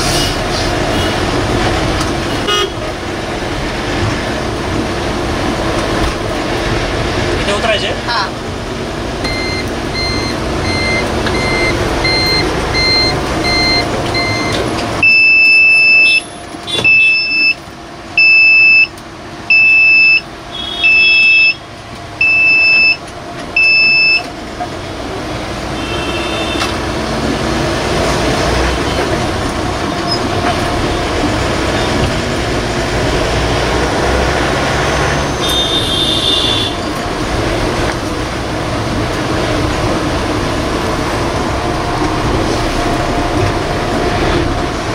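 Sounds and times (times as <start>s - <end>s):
bus engine and road noise: 0.0s - 44.9s
bus alarm beeping: 9.2s - 24.3s, 25.8s - 26.7s, 35.2s - 37.0s.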